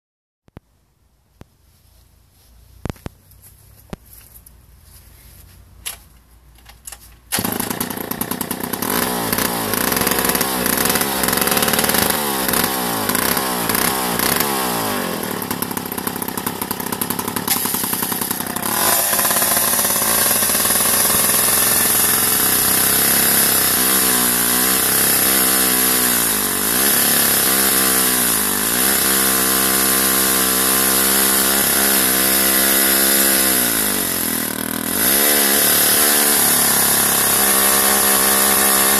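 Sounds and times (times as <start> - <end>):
chainsaw starting and running: 6.8 - 38.9
chainsaw sawing into log: 7.3 - 38.9.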